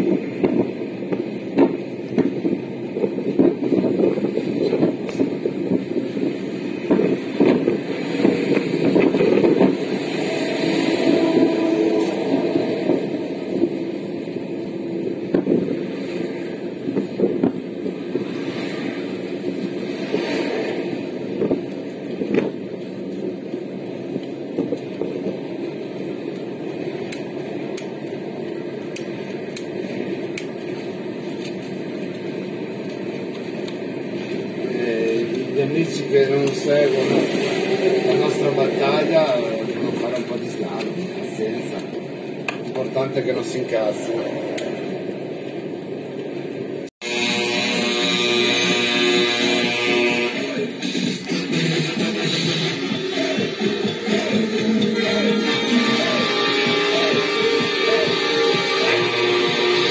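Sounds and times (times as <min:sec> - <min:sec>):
road and engine rumble in car: 0:00.0 - 0:47.0
heavy trucks passing: 0:00.0 - 0:59.9.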